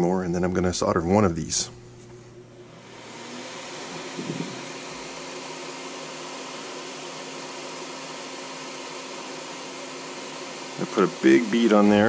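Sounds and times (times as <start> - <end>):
extractor fan running: 0.0 - 12.0
brief bump: 4.0 - 4.6.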